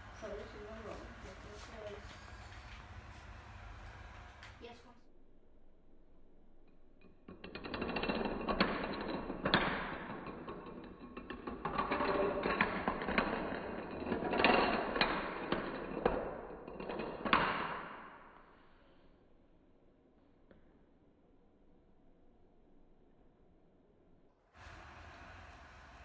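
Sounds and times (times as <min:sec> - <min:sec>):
dominoes toppling on wooden floor: 0:07.3 - 0:18.4.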